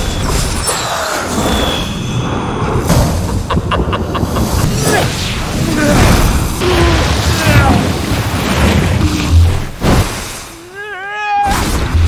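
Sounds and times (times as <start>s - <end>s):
rushing roar of flames: 3.5s - 9.8s.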